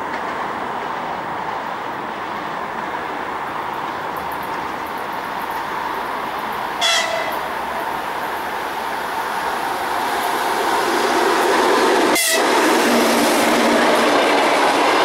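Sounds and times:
train running rumble: 0.0 - 15.0
short high-pitched locomotive horn: 6.8 - 7.5, 12.2 - 12.5.

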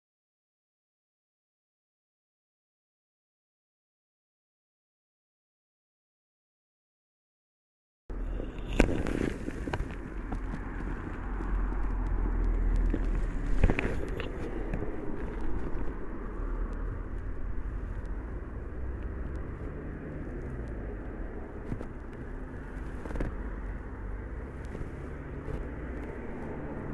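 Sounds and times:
steady low rumble: 8.1 - 26.9.

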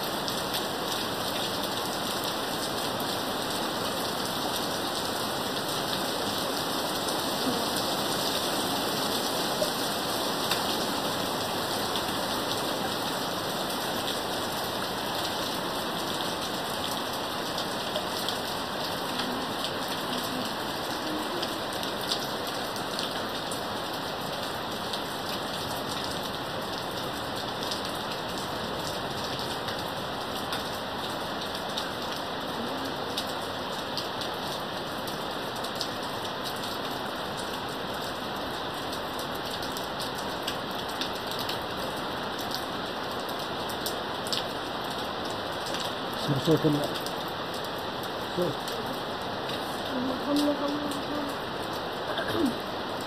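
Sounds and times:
heavy rain hissing: 0.0 - 39.2, 40.0 - 53.0
raindrops ticking on surface: 0.0 - 53.0.

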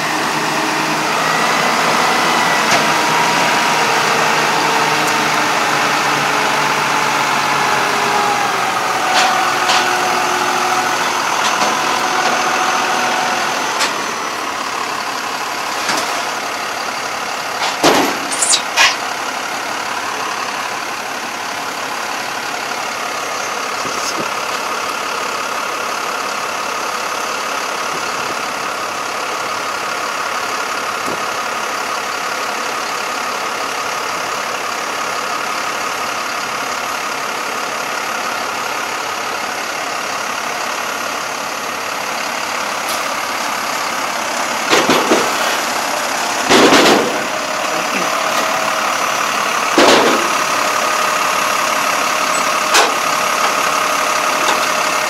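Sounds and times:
diesel engine idling: 0.0 - 55.0
brief high squeal: 18.2 - 19.0.

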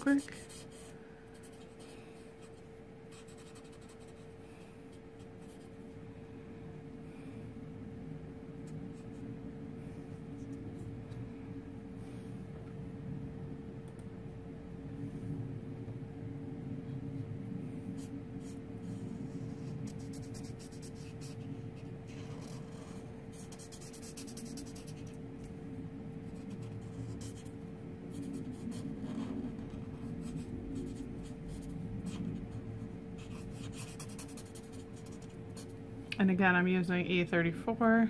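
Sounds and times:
steady background hum: 0.0 - 38.0
marker scratching on cardstock: 19.2 - 25.2, 33.2 - 35.7.

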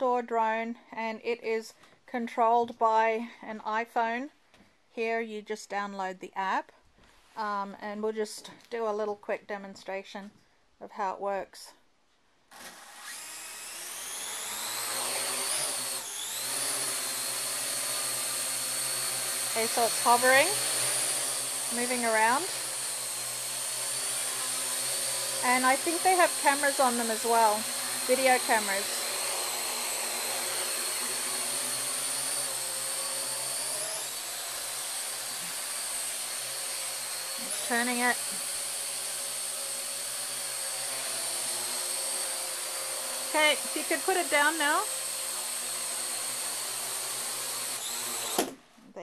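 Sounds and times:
drone rotors whining: 13.0 - 47.0.

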